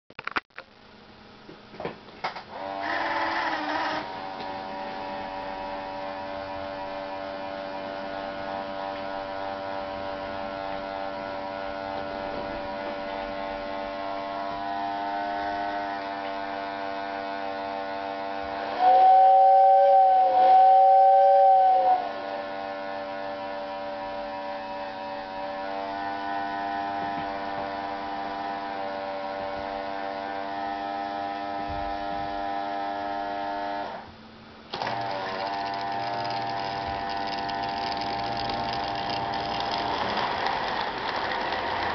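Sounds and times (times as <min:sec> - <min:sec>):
toy train electrical hum: 0:00.9 - 0:41.9
two-note whistle tone: 0:18.8 - 0:22.1.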